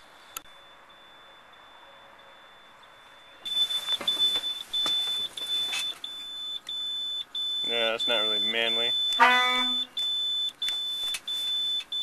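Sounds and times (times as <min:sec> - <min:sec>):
rustling: 0:03.4 - 0:06.4
warning buzzer beeping: 0:03.5 - 0:12.0.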